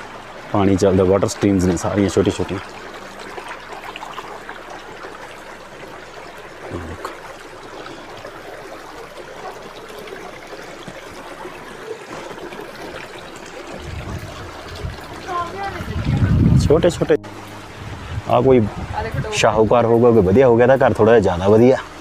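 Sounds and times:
water trickling in channel: 0.0 - 22.0
low rumble: 13.8 - 20.6.

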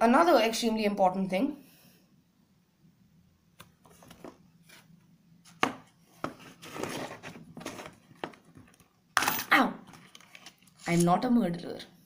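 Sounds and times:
plastic case scraping and rubbing: 6.2 - 8.7.

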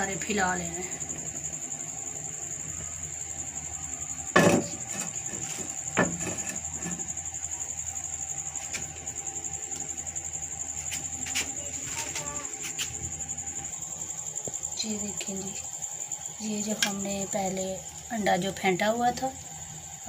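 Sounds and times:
crickets trilling: 0.0 - 20.0
sharp knocks: 4.3 - 6.5.

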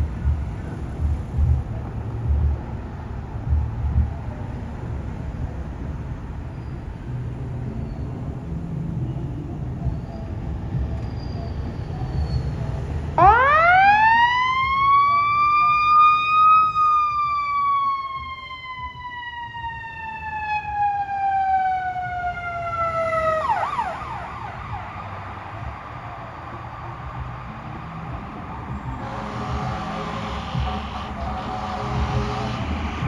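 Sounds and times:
road traffic rumbling: 0.0 - 33.0
ambulance siren wailing and yelping: 13.2 - 33.0.

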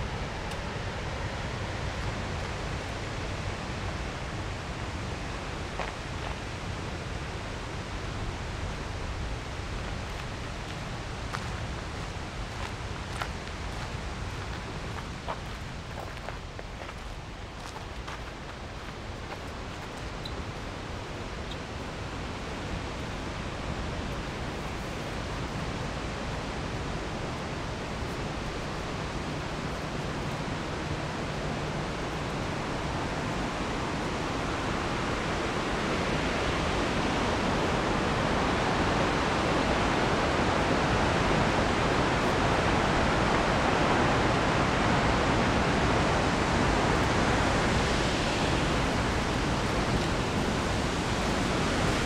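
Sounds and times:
waterfall rushing: 0.0 - 52.0.

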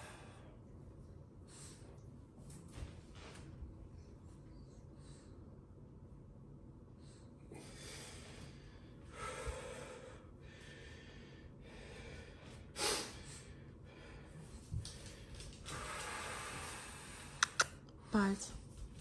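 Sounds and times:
breathing in and out: 0.0 - 0.7, 1.3 - 2.2, 6.8 - 18.1.

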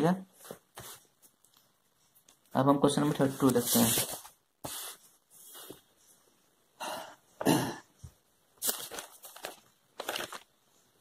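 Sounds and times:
paper pages rustling: 0.4 - 5.9, 8.6 - 10.9
person coughing: 7.4 - 8.0.

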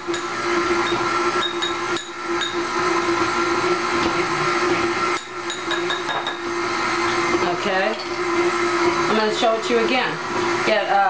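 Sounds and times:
stand mixer running: 0.0 - 11.0
metal spoon clinking on glass: 5.2 - 6.4.

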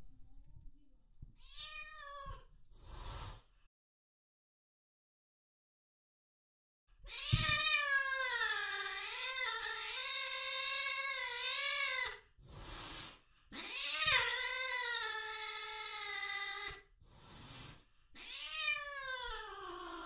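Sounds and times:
cat yowling: 1.4 - 2.4, 7.1 - 12.2, 13.6 - 16.8, 18.2 - 20.0
breathing: 2.7 - 3.7, 12.4 - 13.6, 17.0 - 18.2.

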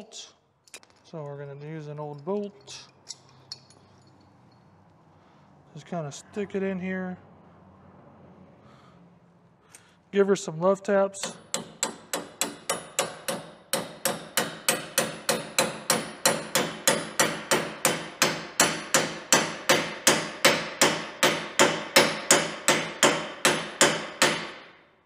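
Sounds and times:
hammer tapping on metal: 11.2 - 24.5.

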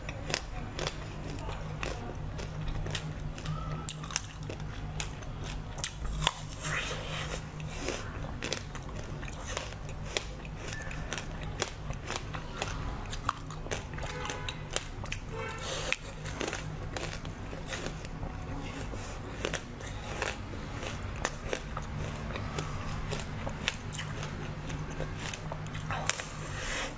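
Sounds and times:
chewing: 0.0 - 26.9
steady low hum: 0.0 - 26.9.

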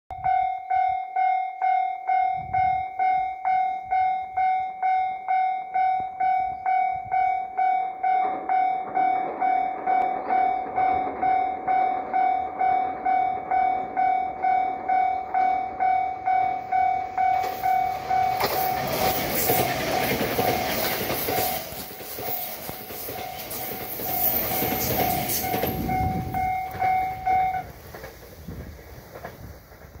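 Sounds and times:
level crossing bell ringing: 0.1 - 19.2, 25.0 - 27.7
train passing: 0.2 - 30.0.

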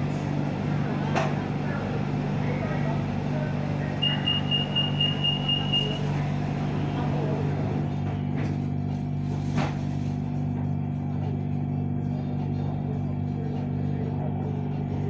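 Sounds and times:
train humming: 0.0 - 8.3
rapid high beeps: 4.0 - 6.0.

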